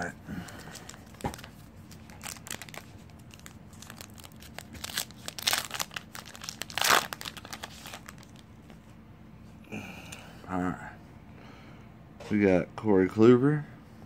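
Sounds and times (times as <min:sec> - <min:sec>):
foil wrapper crinkling: 0:00.0 - 0:08.4.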